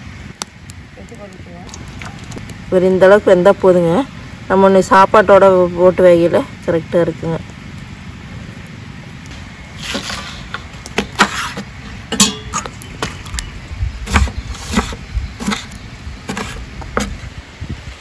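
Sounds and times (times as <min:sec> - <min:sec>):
knife cutting on wooden board: 0:14.1 - 0:17.2.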